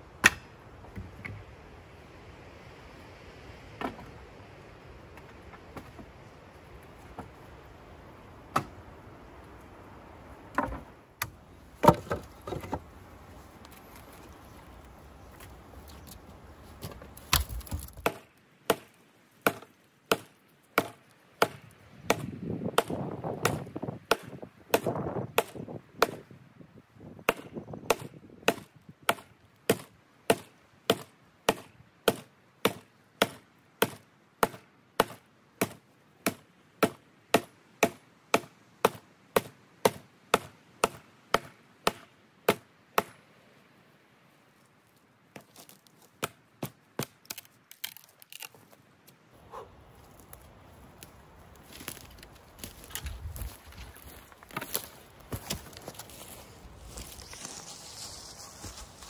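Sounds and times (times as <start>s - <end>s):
wood chopping cracks: 16.8s - 26.2s, 45.4s - 48.7s.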